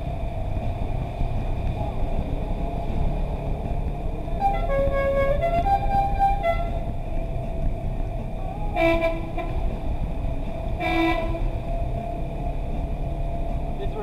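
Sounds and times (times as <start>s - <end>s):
vehicle noise: 0.0s - 14.0s
horn blasts: 4.3s - 7.0s, 8.7s - 9.9s, 10.7s - 11.8s.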